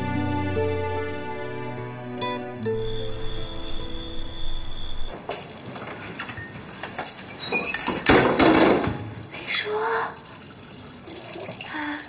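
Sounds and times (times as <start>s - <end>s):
dishes and cutlery clinking: 5.1s - 9.2s.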